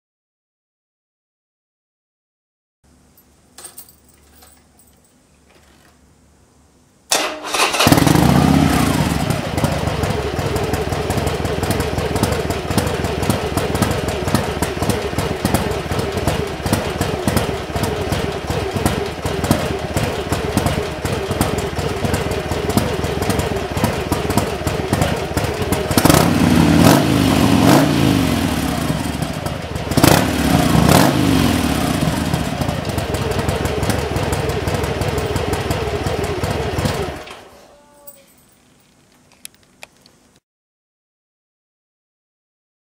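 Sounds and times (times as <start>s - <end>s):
motorcycle engine idling and revving: 7.5s - 37.5s.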